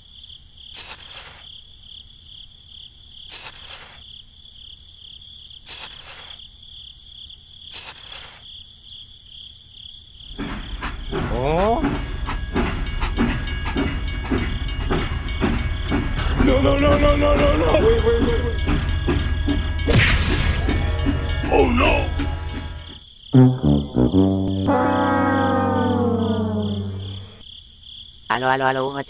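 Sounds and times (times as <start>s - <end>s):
crickets chirring: 0.0s - 29.0s
short bursts of hiss: 0.8s - 1.5s, 3.3s - 4.0s, 5.7s - 6.4s, 7.7s - 8.4s
brief rising tone: 23.4s - 27.4s.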